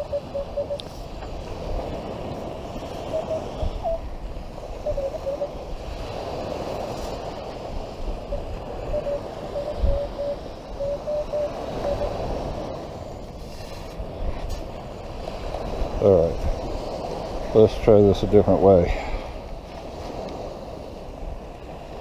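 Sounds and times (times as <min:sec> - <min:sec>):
metal detector beeps: 0:00.0 - 0:00.8, 0:03.1 - 0:04.1, 0:08.9 - 0:12.2.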